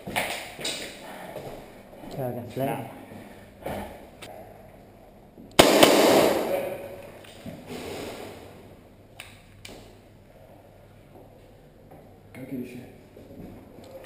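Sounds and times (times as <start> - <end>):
loud bang: 5.6 - 6.8.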